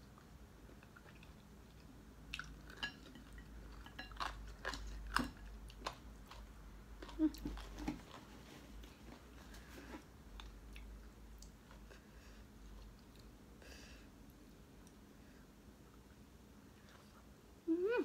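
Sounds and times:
person chewing food: 0:00.0 - 0:13.4.

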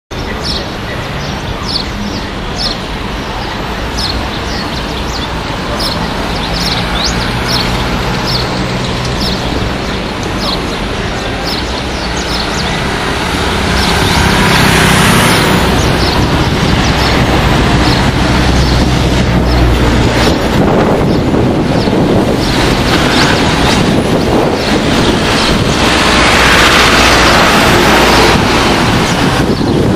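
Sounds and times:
street traffic hum: 0:00.1 - 0:29.9
high bird chirps: 0:03.9 - 0:20.4.

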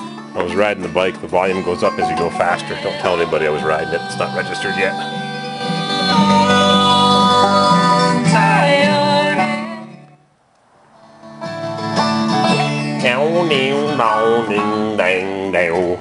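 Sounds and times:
music with guitar and singing: 0:00.0 - 0:10.3, 0:11.0 - 0:16.0.

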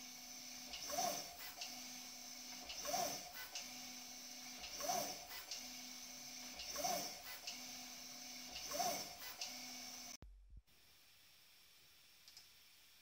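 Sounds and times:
motor whine rising and falling: 0:00.0 - 0:10.2.

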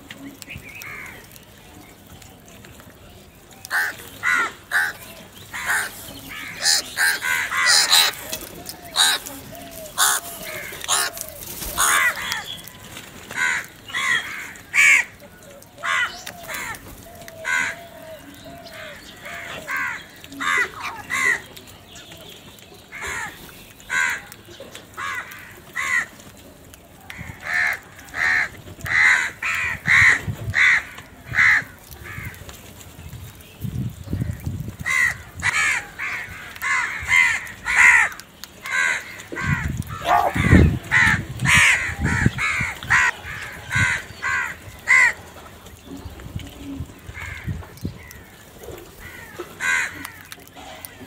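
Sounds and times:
crows cawing: 0:03.7 - 0:12.5, 0:13.3 - 0:15.2, 0:15.8 - 0:17.9, 0:22.9 - 0:24.3, 0:25.0 - 0:26.1, 0:27.1 - 0:32.4, 0:34.8 - 0:45.2, 0:49.0 - 0:51.0.

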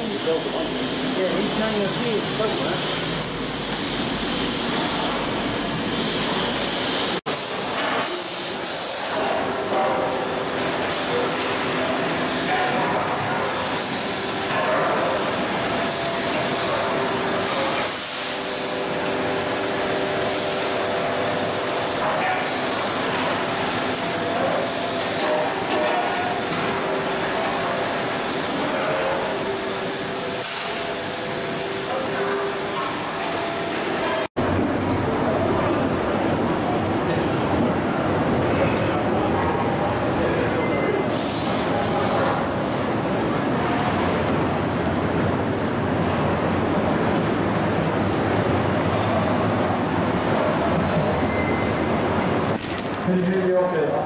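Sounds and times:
steam hissing: 0:41.1 - 0:42.9.

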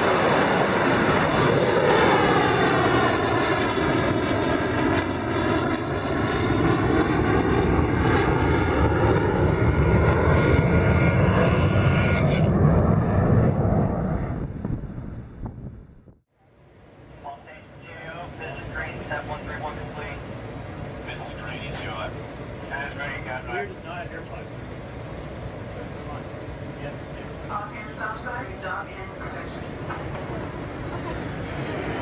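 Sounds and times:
missile rocket motor roar: 0:29.4 - 0:32.0.

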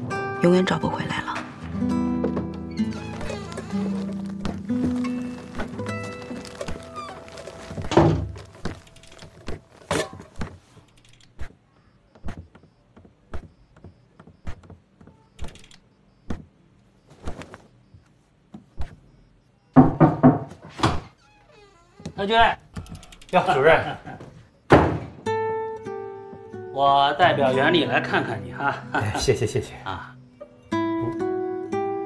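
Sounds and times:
music: 0:00.0 - 0:09.6, 0:25.2 - 0:32.0
heavy footsteps on wooden floor: 0:01.6 - 0:10.6.

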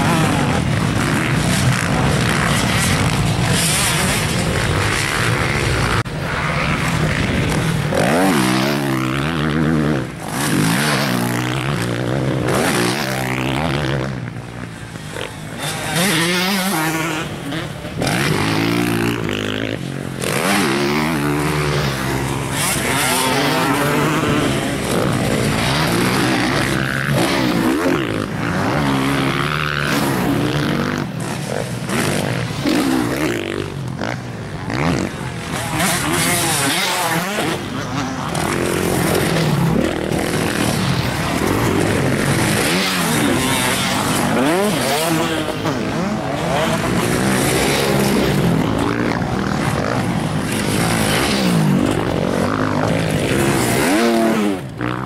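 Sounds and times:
dirt bike engines revving: 0:00.0 - 0:55.0.

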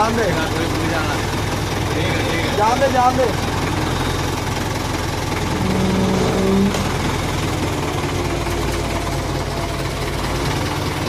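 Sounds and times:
forklift engine running: 0:00.0 - 0:11.0
humming whine: 0:04.8 - 0:09.0.

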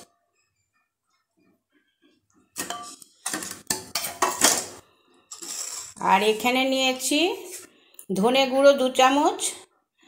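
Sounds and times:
metal utensils clinking: 0:02.6 - 0:06.4.

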